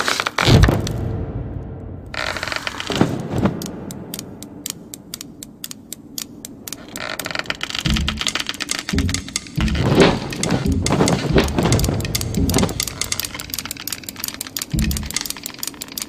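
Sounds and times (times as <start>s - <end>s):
dull low thuds: 0.5s - 4.6s, 7.9s - 8.4s, 9.0s - 13.6s, 14.8s - 15.2s
knitting needles clicking: 2.2s - 16.0s.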